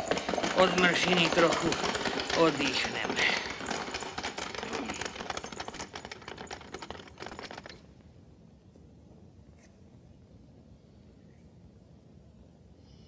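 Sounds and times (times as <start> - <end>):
cart wheels clattering: 0.0 - 7.9
horse hooves clattering: 0.0 - 8.1.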